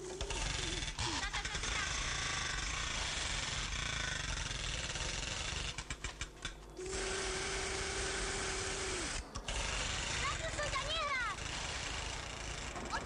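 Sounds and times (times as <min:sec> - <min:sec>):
toy machine-gun rattle: 0:00.0 - 0:07.6, 0:09.1 - 0:13.0.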